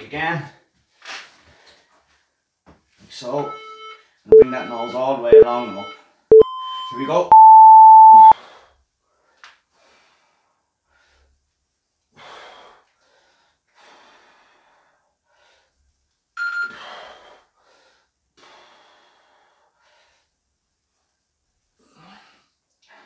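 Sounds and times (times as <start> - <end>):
man breathing hard: 12.1 - 15.8, 16.7 - 20.4.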